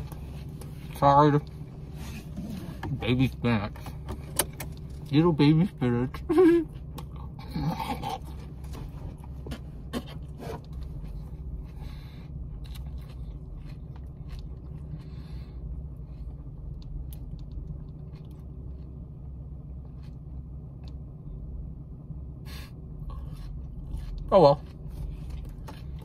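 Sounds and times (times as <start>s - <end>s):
steady low hum: 0.0s - 26.0s
chewing leafy greens: 9.9s - 19.0s, 23.0s - 26.0s.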